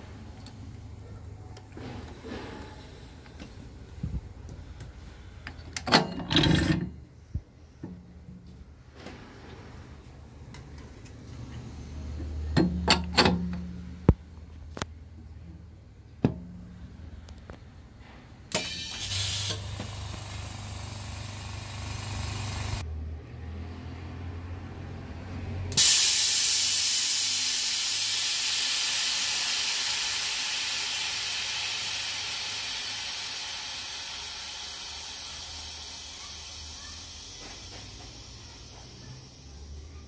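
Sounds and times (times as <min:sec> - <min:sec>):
compressed air hissing: 0:18.5 - 0:22.8, 0:25.8 - 0:39.8.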